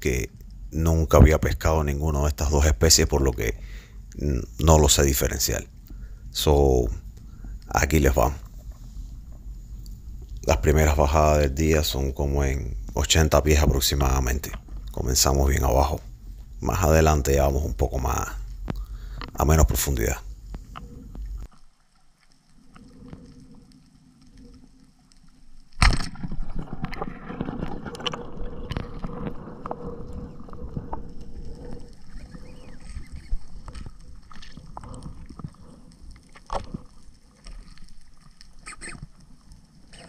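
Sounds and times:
clicks and ticks: 0:18.6 - 0:19.4
muffled underwater noise: 0:27.9 - 0:37.6.

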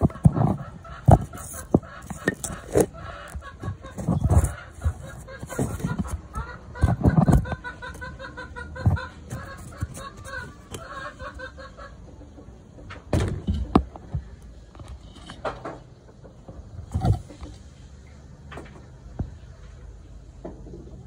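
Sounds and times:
chicken clucking: 0:00.0 - 0:14.6.

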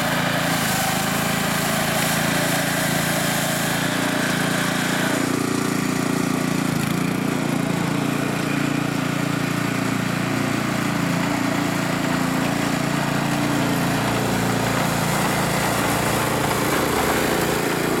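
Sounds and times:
sweeper engine running: 0:00.0 - 0:18.0.

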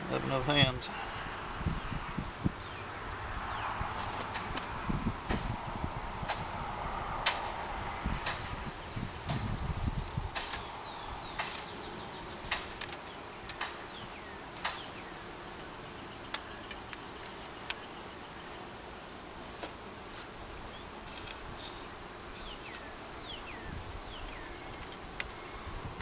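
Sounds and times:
honeybees buzzing: 0:00.0 - 0:26.0
wooden hive frame clicking: 0:10.0 - 0:15.0, 0:16.3 - 0:17.9, 0:21.0 - 0:21.8, 0:24.1 - 0:25.4.

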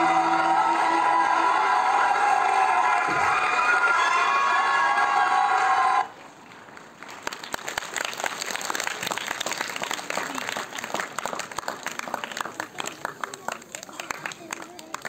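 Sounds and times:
loud held sound: 0:00.0 - 0:06.0
audience applauding: 0:00.0 - 0:15.0.

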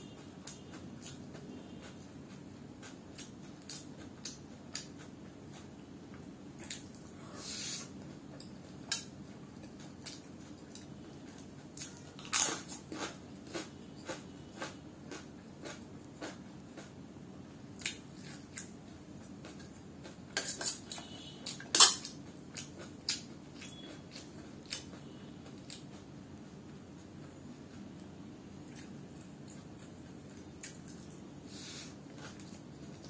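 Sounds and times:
chips crunching and chewing: 0:08.9 - 0:17.0.

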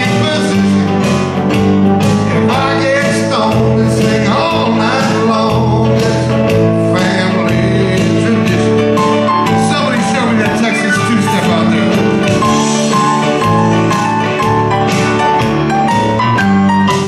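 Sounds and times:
man singing country song: 0:00.0 - 0:01.3, 0:02.3 - 0:12.7
guitar: 0:00.0 - 0:17.0
synthesizer keyboard: 0:09.0 - 0:17.0.

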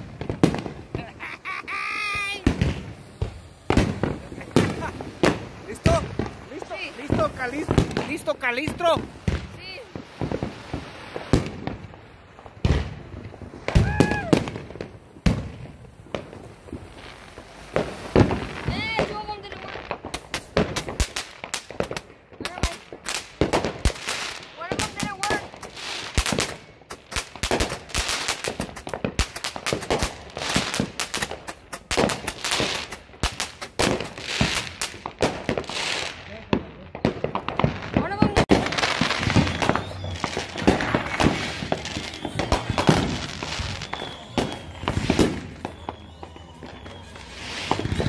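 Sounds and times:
crackling hiss: 0:00.0 - 0:48.0
fireworks and firecrackers banging: 0:00.0 - 0:48.0.

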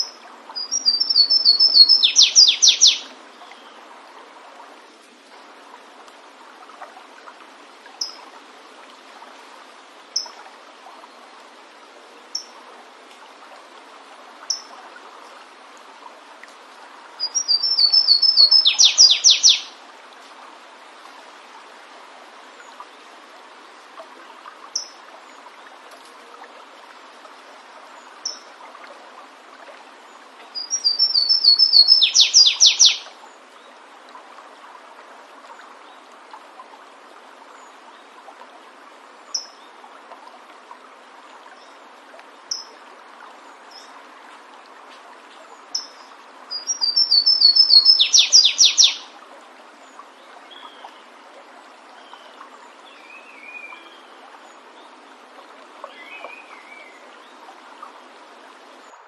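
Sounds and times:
warbler singing: 0:00.0 - 0:03.7, 0:17.2 - 0:19.7, 0:30.6 - 0:33.0, 0:45.7 - 0:49.0
stream rushing: 0:00.0 - 0:59.0.

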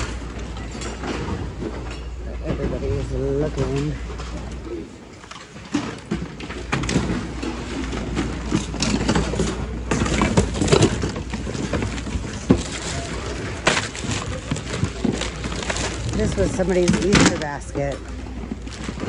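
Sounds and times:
objects clattering together: 0:00.0 - 0:19.0
plastic bags rustling: 0:05.8 - 0:19.0.

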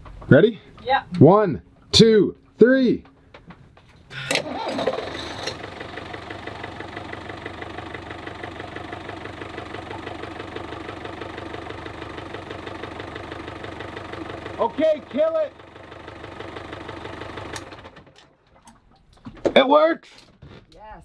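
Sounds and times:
boat engine idling: 0:04.1 - 0:19.3.

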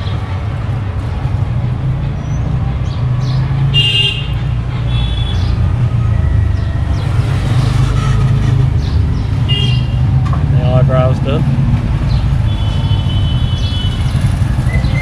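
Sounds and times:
vehicle horn honk: 0:03.8 - 0:05.4, 0:12.5 - 0:14.1.

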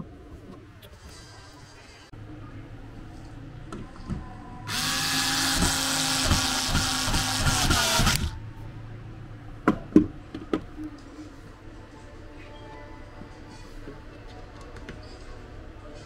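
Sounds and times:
power drill whine: 0:04.7 - 0:08.3.

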